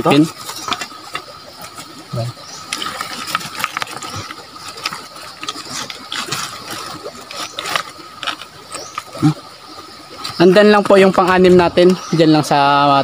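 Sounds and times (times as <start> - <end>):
pebbles clicking and scraping: 0.2 - 2.0, 2.6 - 9.3.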